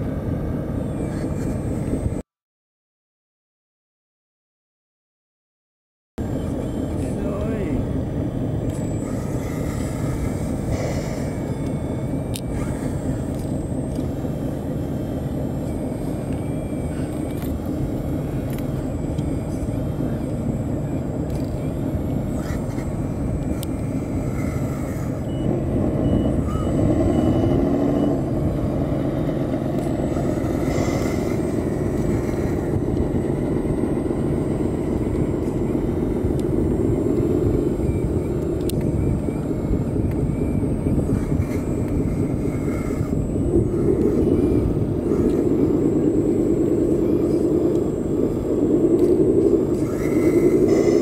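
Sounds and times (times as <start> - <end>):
hydraulic pump whine: 0.0 - 2.2, 6.2 - 51.0
mechanical drone: 0.0 - 2.2, 6.2 - 51.0.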